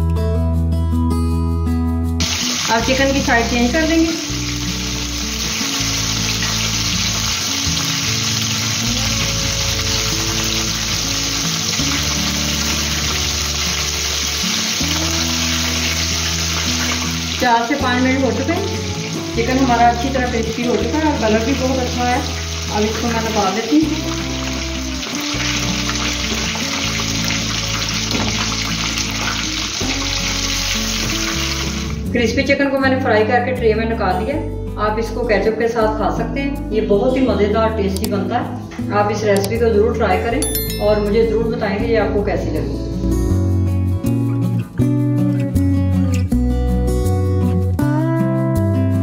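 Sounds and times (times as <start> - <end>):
low sustained background music: 0.0 - 47.0
chicken deep-frying in oil: 2.2 - 32.0.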